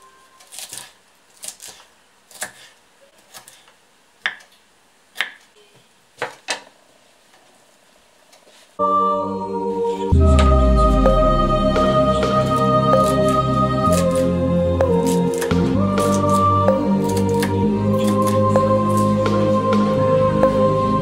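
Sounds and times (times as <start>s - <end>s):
knife chopping on wooden board: 4.2s - 4.5s, 5.2s - 5.4s
music: 8.8s - 21.0s.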